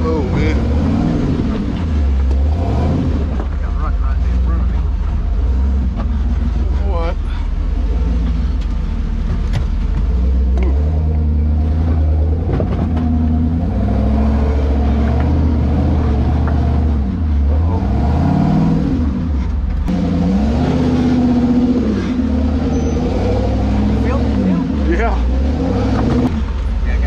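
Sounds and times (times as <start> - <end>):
knocks from rocks and chassis: 1.3 - 3.6, 8.3 - 13.5, 14.9 - 17.0, 25.7 - 26.8.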